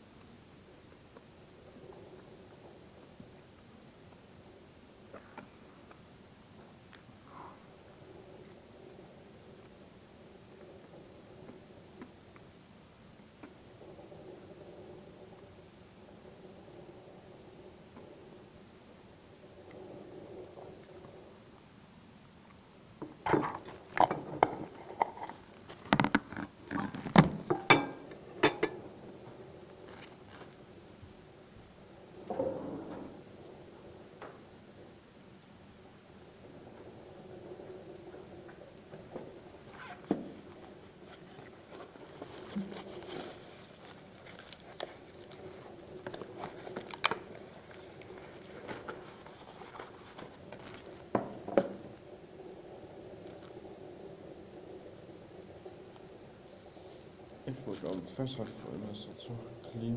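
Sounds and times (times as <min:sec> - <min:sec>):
light crinkling: 0:00.2 - 0:59.9
tableware knocking and clicking: 0:27.5 - 0:28.8.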